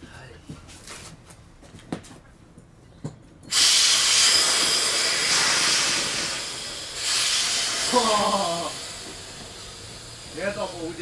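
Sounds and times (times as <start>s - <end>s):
air hissing out of inflatable boat: 3.5s - 11.0s.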